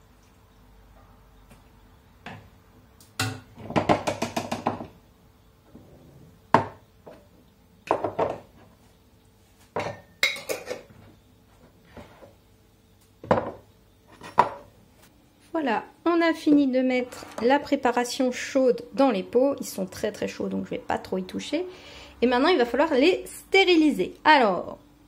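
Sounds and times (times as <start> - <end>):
glass jars set down: 7.9 - 8.5, 9.7 - 11.1, 13.2 - 14.7.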